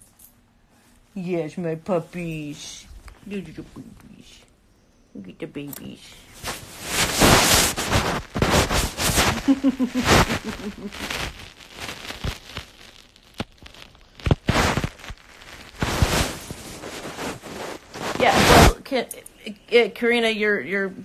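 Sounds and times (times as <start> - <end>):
crackling handling noise: 5.6 - 19.3.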